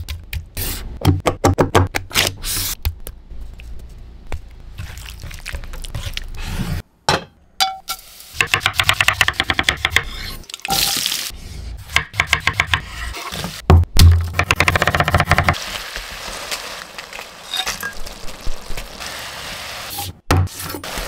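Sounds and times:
seeds crackling in hot oil: 0:15.6 - 0:19.9.

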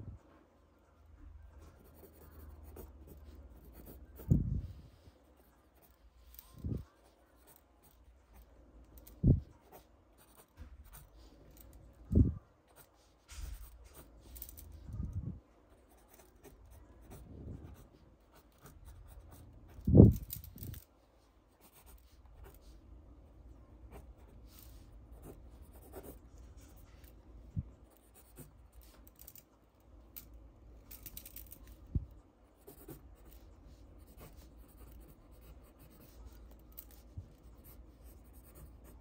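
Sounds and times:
pencil scratching on paper: 0:01.6 - 0:11.8, 0:12.6 - 0:14.8, 0:15.7 - 0:19.9, 0:21.6 - 0:22.8, 0:23.9 - 0:27.1, 0:27.9 - 0:29.2, 0:32.6 - 0:39.0.

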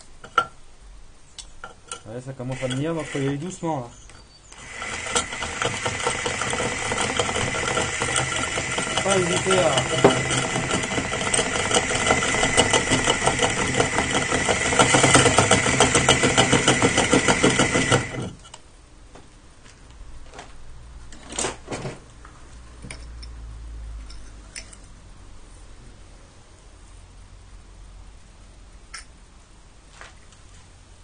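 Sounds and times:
drill grinding through ceramic: 0:02.4 - 0:03.8, 0:04.5 - 0:18.4.

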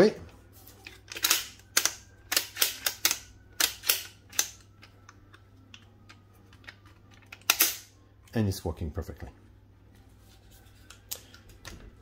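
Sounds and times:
rifle bolt clicking and clacking: 0:01.1 - 0:07.9.

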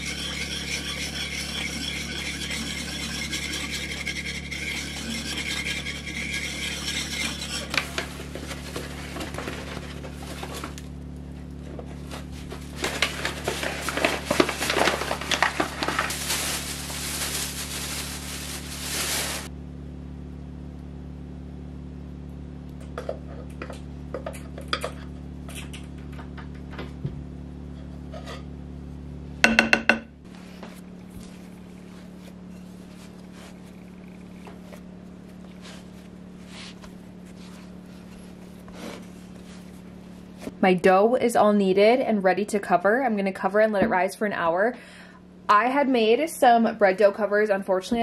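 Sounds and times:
whisk stirring batter in bowl: 0:00.0 - 0:09.8
generator humming: 0:00.0 - 0:41.8
plastic bag rustling: 0:07.7 - 0:10.9, 0:11.8 - 0:19.5.

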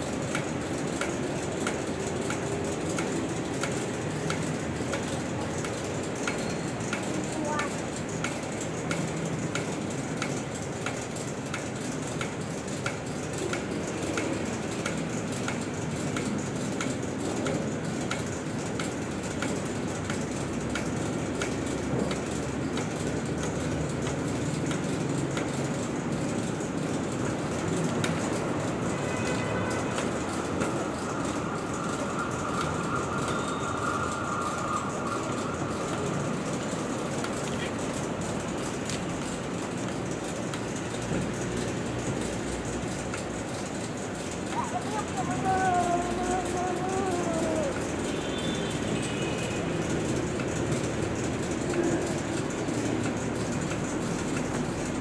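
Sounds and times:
conveyor machinery running: 0:00.0 - 0:55.0
trolley line clicking: 0:00.0 - 0:55.0
high whine: 0:29.8 - 0:39.0.

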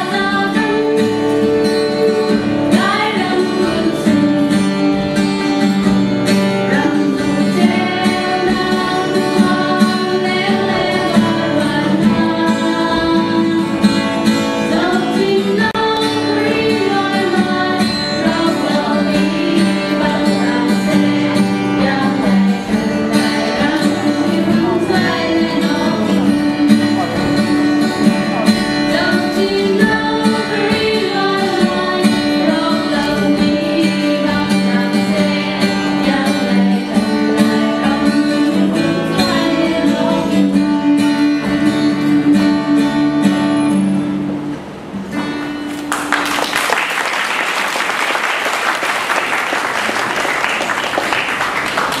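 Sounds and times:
music with singing: 0:00.0 - 0:44.0
audience applauding: 0:45.6 - 0:52.0.

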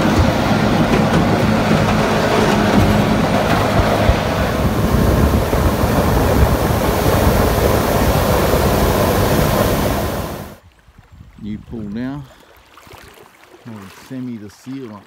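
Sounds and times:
boat engine drone: 0:00.0 - 0:10.6
rushing water: 0:00.0 - 0:11.0, 0:12.0 - 0:15.0
wind buffeting microphone: 0:00.0 - 0:12.2.

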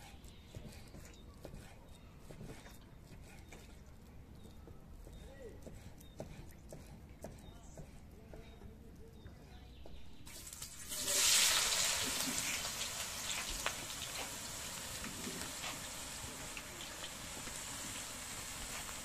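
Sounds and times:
food sizzling in a pan: 0:10.3 - 0:19.0.

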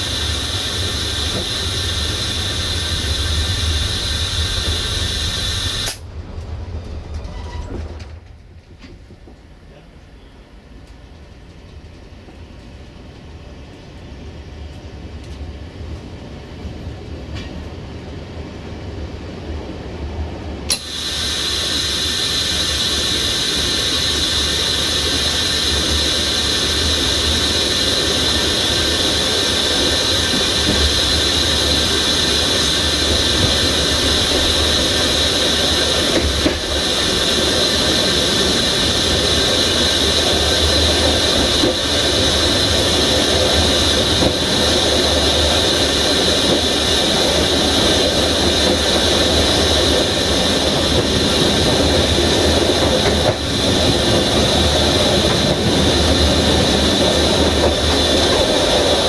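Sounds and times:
train rumbling: 0:00.0 - 0:59.0
train wheels squealing: 0:07.1 - 0:08.1.

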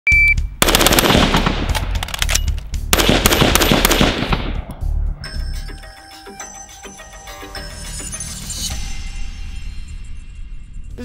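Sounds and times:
music: 0:00.1 - 0:11.0
rapid gunfire: 0:00.6 - 0:01.8, 0:02.9 - 0:04.6.

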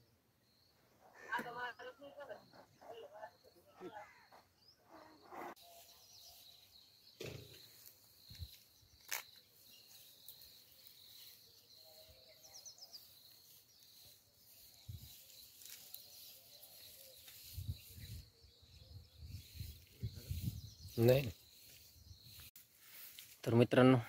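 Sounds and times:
faint chirps: 0:00.0 - 0:24.0
high insect tone: 0:06.4 - 0:18.3.

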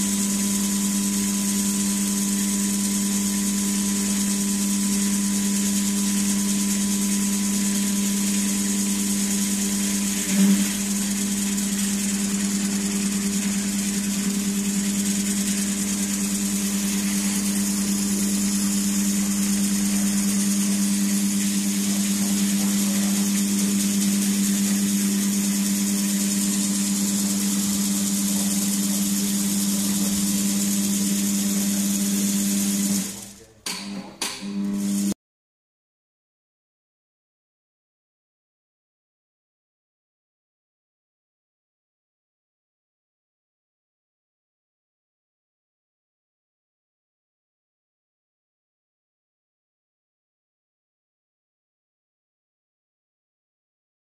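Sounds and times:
machine motor running: 0:00.0 - 0:35.2.

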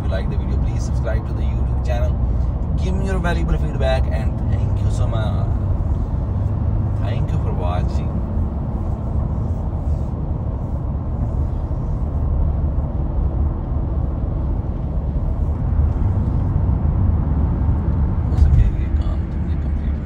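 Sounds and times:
road and engine noise in car: 0:00.0 - 0:20.0.

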